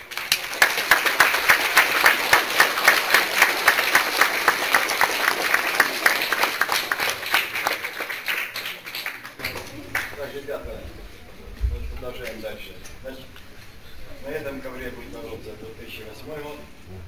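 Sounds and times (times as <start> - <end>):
crowd applauding: 0.0 - 10.3.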